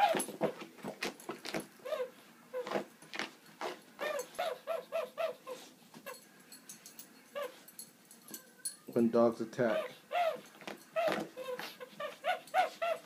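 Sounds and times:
dog whining: 0.0 - 0.7, 1.3 - 6.3, 7.3 - 9.0, 9.6 - 13.0
small dog yipping: 3.6 - 6.2, 7.4 - 7.7, 9.7 - 13.0.

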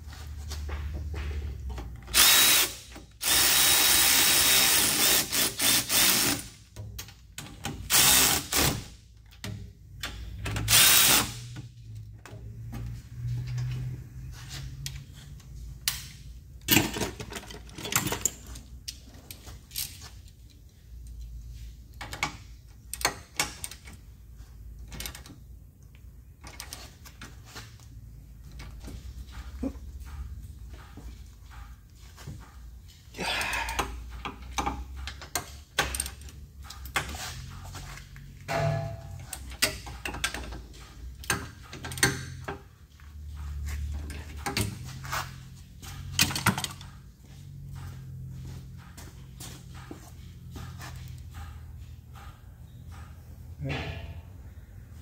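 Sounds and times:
tools clicking and knocking: 0.6 - 14.0, 14.8 - 54.3
cordless electric ratchet whirring: 2.1 - 6.5.

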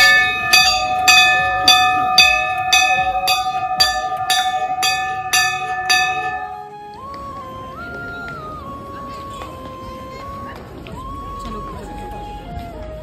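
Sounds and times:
temple bell ringing: 0.0 - 6.8
melody of held notes: 0.0 - 10.1.

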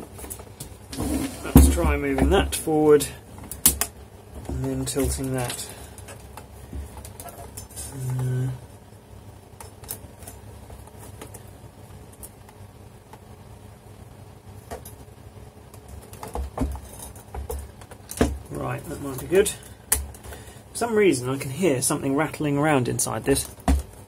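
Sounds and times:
low voice hum: 7.7 - 8.8.

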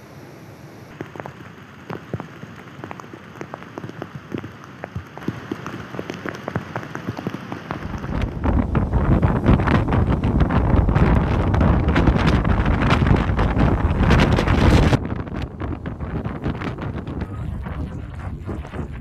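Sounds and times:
rain falling: 0.9 - 16.5
wind buffeting microphone: 7.7 - 19.0.

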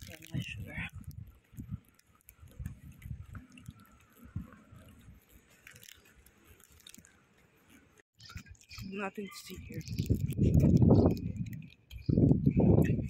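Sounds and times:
person chewing crunchy nuts: 5.5 - 7.1.

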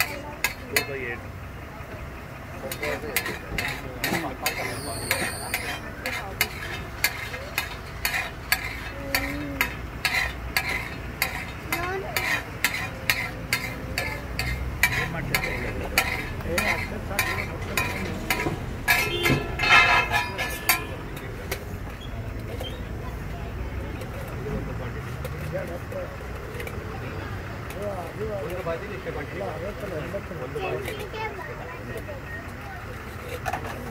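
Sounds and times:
metal spatulas striking griddle: 0.0 - 1.0, 2.7 - 22.0.

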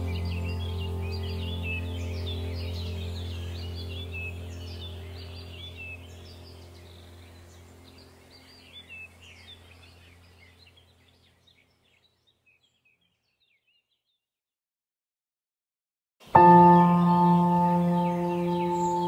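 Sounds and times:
ambient music drone: 0.0 - 10.5, 16.3 - 19.0
birdsong chirps: 0.0 - 14.3, 16.2 - 19.0.

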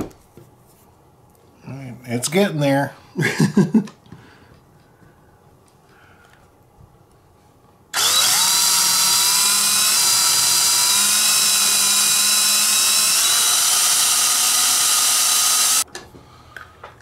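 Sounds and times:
cordless drill boring through plastic: 8.0 - 15.8.

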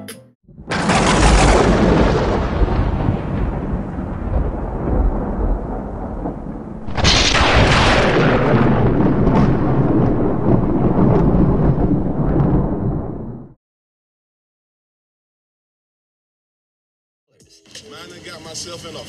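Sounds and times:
loud low rumbling: 0.5 - 13.6.

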